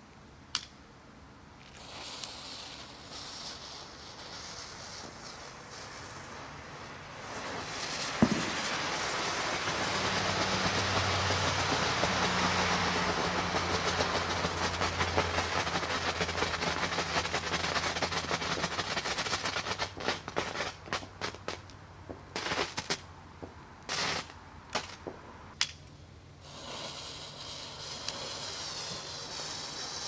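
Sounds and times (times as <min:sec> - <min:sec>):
firework spraying hiss: 0:01.6 - 0:21.7, 0:23.8 - 0:25.1, 0:26.4 - 0:30.0
crackling firework pops: 0:01.6 - 0:30.0
firework pop: 0:07.8 - 0:08.9.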